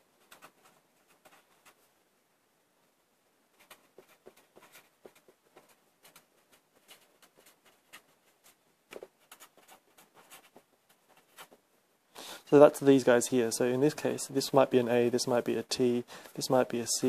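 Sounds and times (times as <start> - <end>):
marker scratching on paper: 0.2 - 1.9, 3.6 - 11.6.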